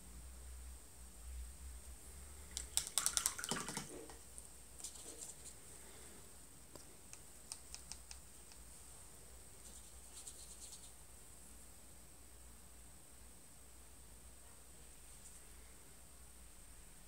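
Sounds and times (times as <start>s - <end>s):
paintbrush clicks and taps: 2.5s - 4.2s, 6.7s - 8.7s.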